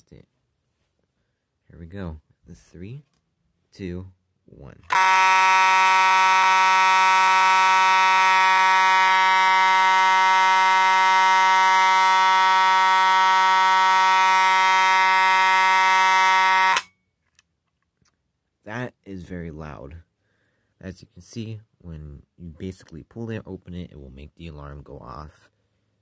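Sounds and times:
fire alarm horn: 4.9s - 16.9s.

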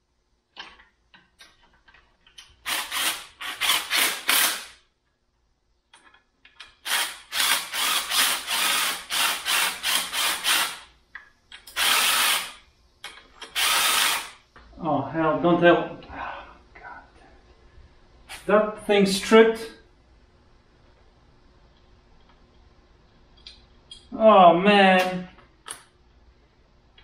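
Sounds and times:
cordless power driver bursts: 2.7s - 4.8s, 6.8s - 10.8s, 11.8s - 12.6s, 13.5s - 14.4s.

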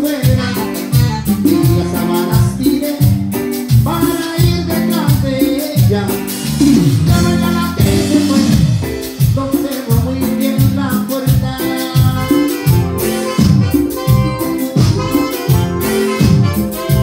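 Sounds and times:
congas: 0.0s - 17.0s
drum kit: 0.0s - 17.0s
electric bass: 0.0s - 17.0s
saxophones: 12.2s - 17.0s.

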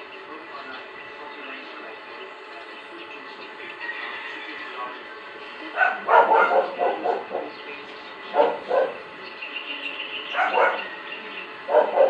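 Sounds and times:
dog barking: 5.8s - 7.6s, 8.3s - 9.0s, 10.3s - 10.9s, 11.7s - 12.0s.

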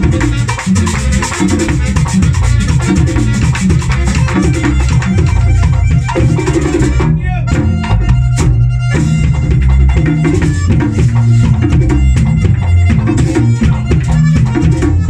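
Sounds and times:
band playing accordion music: 0.0s - 15.0s.

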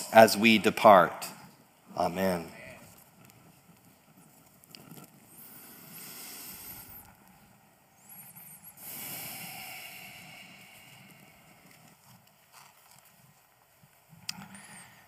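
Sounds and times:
rustling and handling noise: 2.8s - 6.0s, 11.0s - 14.3s.

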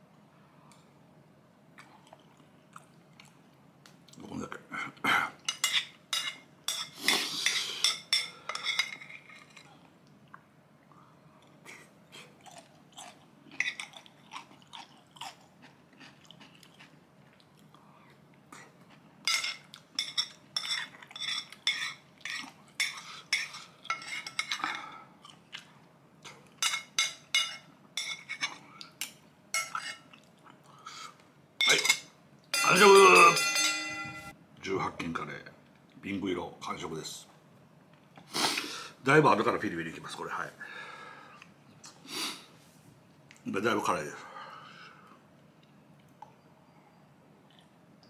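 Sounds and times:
chewing: 1.8s - 4.2s, 12.2s - 19.0s, 47.4s - 47.8s
spoon clinking on ceramic plate: 31.6s - 34.3s.

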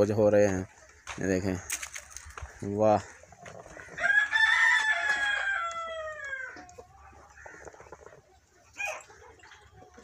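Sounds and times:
rooster crowing: 4.0s - 6.6s.

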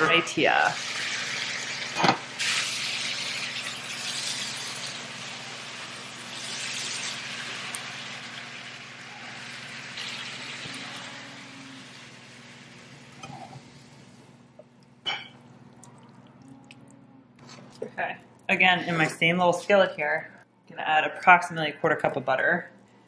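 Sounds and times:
food sizzling in butter: 0.0s - 14.2s
spatula stirring in skillet: 0.8s - 11.3s
steady low hum: 7.3s - 23.0s.

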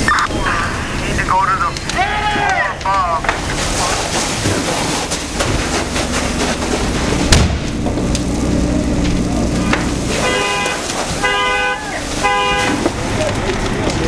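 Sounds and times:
fire crackling and rumbling: 0.0s - 14.0s
hose spraying: 3.2s - 14.0s
sharp pop: 7.3s - 7.8s
vehicle horn blasts: 10.1s - 13.0s.

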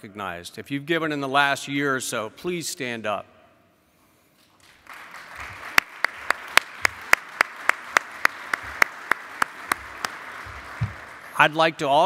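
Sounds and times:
hands clapping close to microphone: 4.4s - 11.4s
audience applause: 4.6s - 11.6s.

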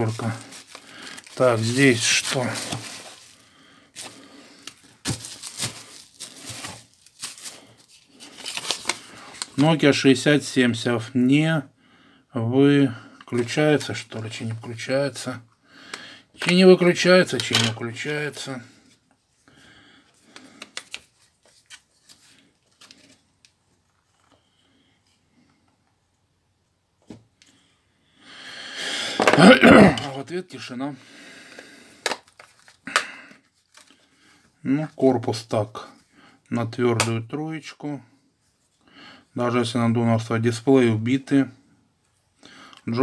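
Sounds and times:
paper rustling and crinkling: 0.0s - 9.9s, 20.4s - 23.3s, 32.1s - 34.0s.

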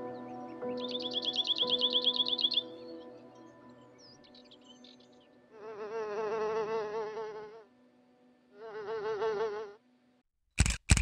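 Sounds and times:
flying insect buzzing: 5.5s - 7.8s, 8.5s - 9.9s.

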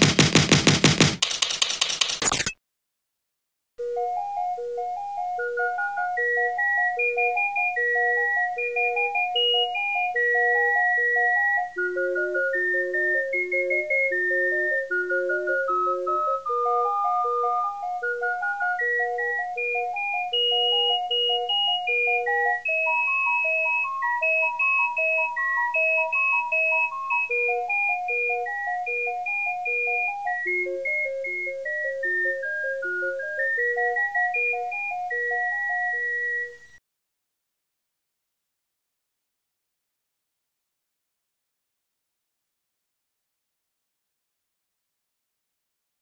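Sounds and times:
light bouncy background music: 0.0s - 2.2s, 3.8s - 36.5s.

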